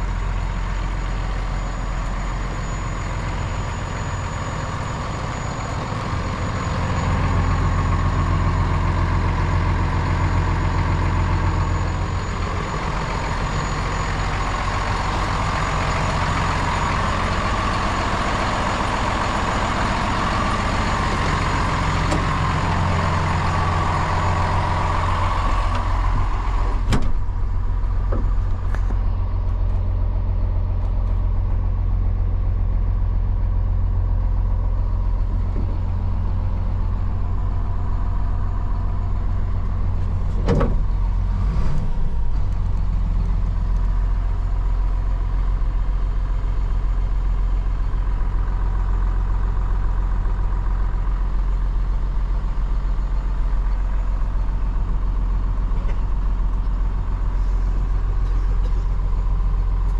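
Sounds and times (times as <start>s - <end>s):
diesel truck engine idling: 0.0s - 59.9s
door shutting: 26.7s - 27.4s, 40.2s - 41.0s.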